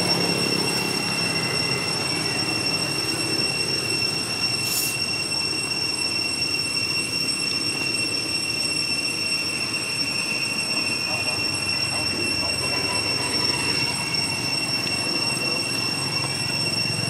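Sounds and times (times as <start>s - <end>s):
high-pitched whine: 0.0s - 17.0s
brief hiss: 4.6s - 5.0s.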